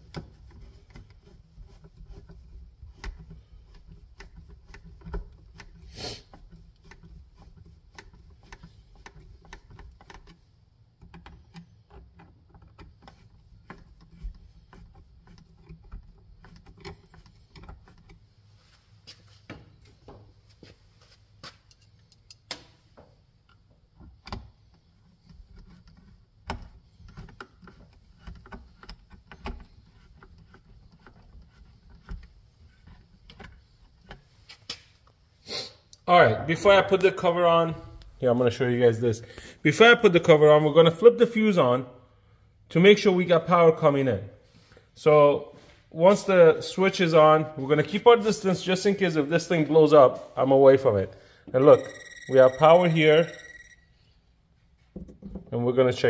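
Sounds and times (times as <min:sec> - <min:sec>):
screwdriver metallic clicks and scrapes: 0:00.1 - 0:10.4.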